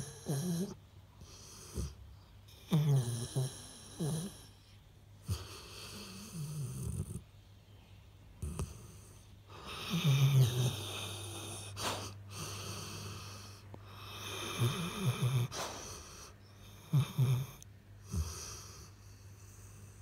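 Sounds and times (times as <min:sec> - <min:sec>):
dog breathing: 0:00.0 - 0:07.2, 0:08.4 - 0:20.0
dog snoring: 0:00.0 - 0:07.3, 0:08.4 - 0:20.0.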